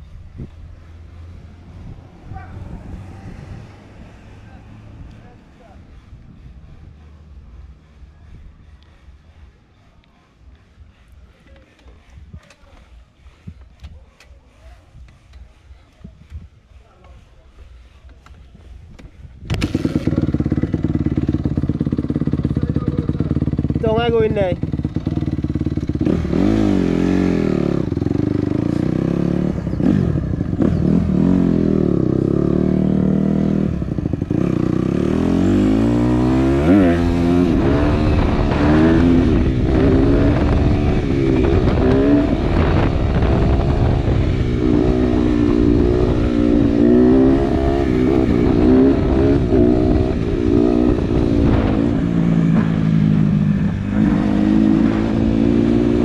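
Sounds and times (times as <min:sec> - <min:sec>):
dirt bike engine revving: 0:19.6 - 0:56.0.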